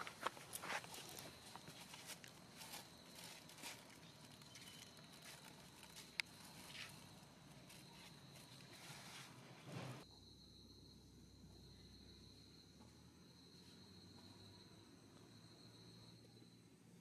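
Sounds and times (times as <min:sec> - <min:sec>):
rustling and scuffing on dirt: 0:00.0 - 0:10.0.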